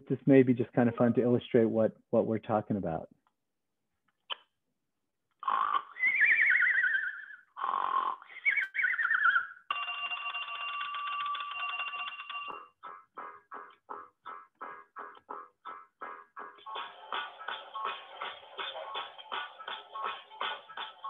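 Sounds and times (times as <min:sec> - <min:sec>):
rhythmic strummed music: 0:12.5 - 0:21.0.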